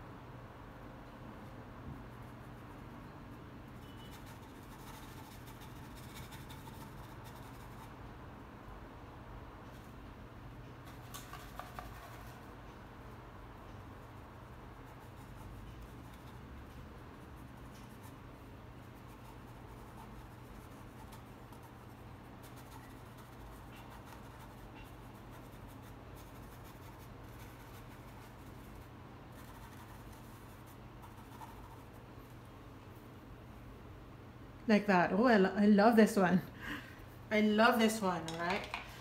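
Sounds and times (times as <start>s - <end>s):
steady low hum: 0.0s - 39.0s
paintbrush strokes: 3.7s - 8.0s, 17.2s - 33.1s.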